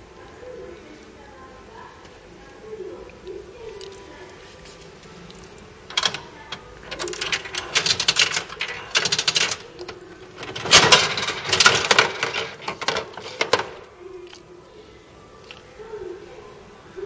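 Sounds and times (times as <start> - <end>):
plastic capsule clattering down: 5.9 - 13.9.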